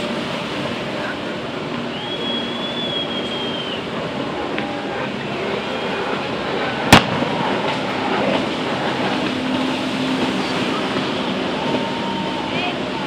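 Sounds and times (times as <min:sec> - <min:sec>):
boat engines droning: 0:00.0 - 0:13.0
water noise: 0:00.0 - 0:13.0
wind: 0:00.0 - 0:13.0.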